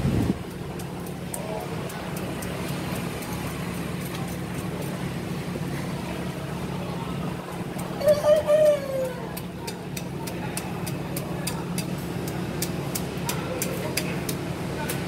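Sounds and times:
boat engine idling: 0.0 - 15.0.

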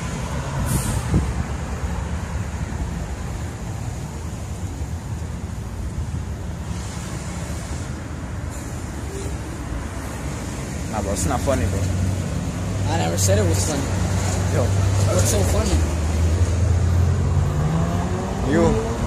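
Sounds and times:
low traffic rumble: 0.0 - 19.0.

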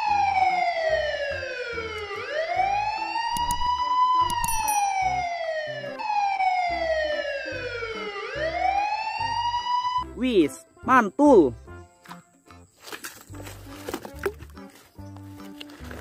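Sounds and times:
police siren wailing: 0.0 - 10.1
sharp clicks: 3.3 - 4.7.

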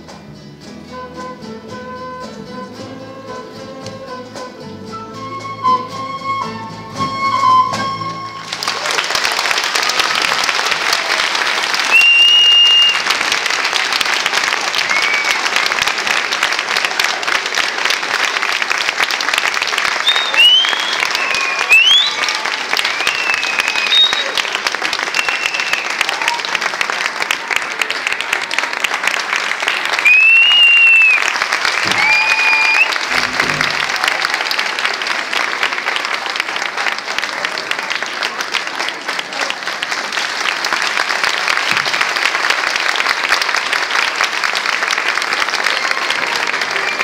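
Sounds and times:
crowd whistling: 5.1 - 8.9, 11.8 - 13.3, 14.8 - 15.8, 19.9 - 26.6, 29.9 - 34.5, 45.7 - 47.0
audience applauding: 7.1 - 47.0.

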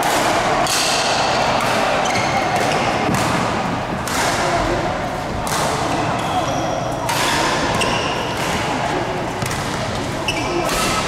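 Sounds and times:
racket hitting shuttlecock: 0.0 - 4.6, 9.4 - 11.0
sports hall background noise: 0.0 - 11.0.

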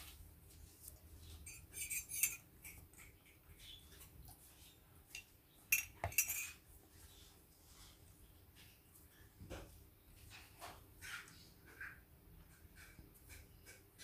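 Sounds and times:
cutlery and dishes clinking: 1.3 - 3.3, 5.1 - 6.6.

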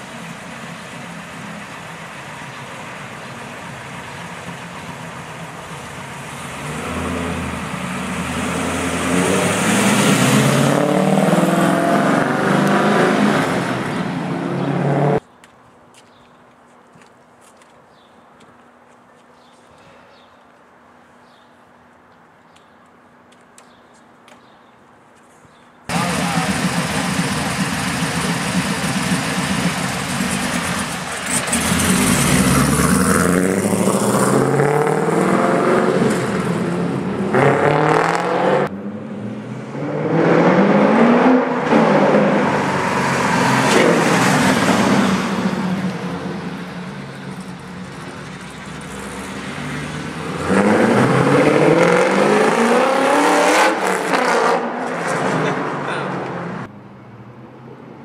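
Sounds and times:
car engine accelerating hard: 5.8 - 15.2, 25.9 - 56.7.

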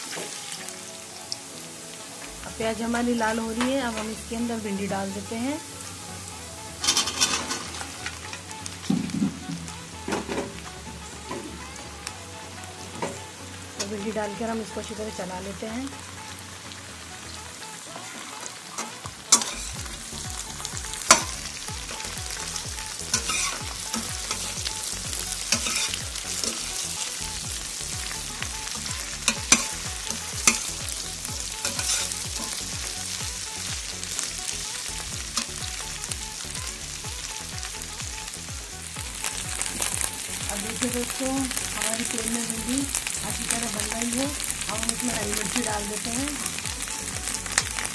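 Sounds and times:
okra frying in hot oil: 0.0 - 47.9
spoon scraping and knocking pan: 23.1 - 24.5, 25.5 - 26.9, 30.4 - 30.8, 31.6 - 32.6.

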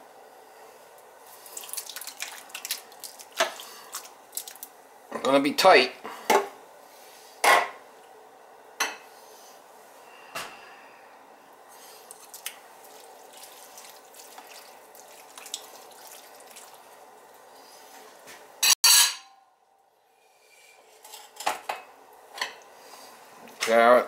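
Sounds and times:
food spread in roasting pan: 11.8 - 18.4
ceramic bowl clinking and scraping: 18.6 - 19.3
dishes clattering: 18.6 - 19.3.

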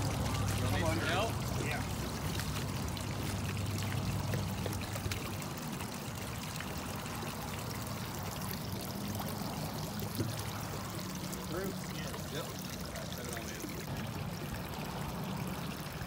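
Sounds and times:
water running and splashing: 0.0 - 16.0.

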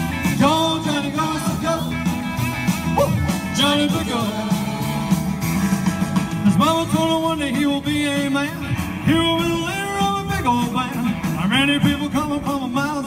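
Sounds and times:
rock and roll music with guitar: 0.0 - 13.0
man singing into microphone: 0.2 - 2.1, 3.0 - 5.2, 6.4 - 13.0.

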